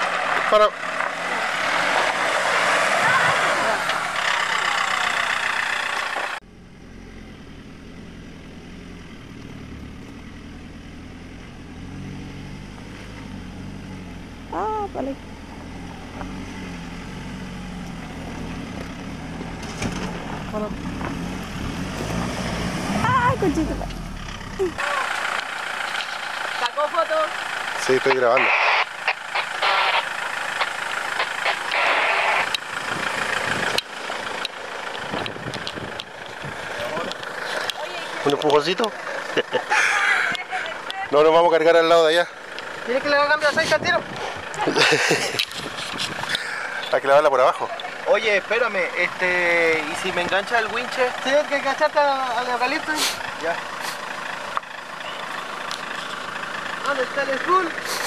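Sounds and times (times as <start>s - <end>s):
truck engine idling: 0.0s - 58.0s
hissing: 28.4s - 32.8s.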